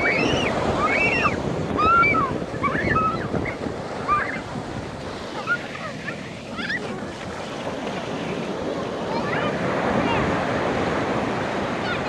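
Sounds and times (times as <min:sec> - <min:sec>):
children squealing: 0:00.0 - 0:04.6, 0:05.2 - 0:07.2
surf breaking on sand: 0:00.0 - 0:12.0.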